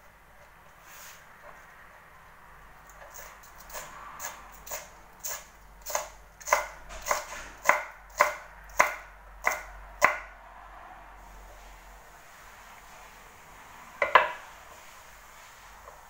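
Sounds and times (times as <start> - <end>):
knife chopping on cutting board: 3.1 - 10.3.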